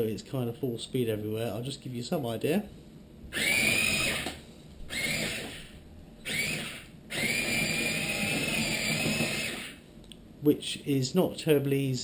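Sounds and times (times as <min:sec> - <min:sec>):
electric motor whining: 0:03.3 - 0:09.8.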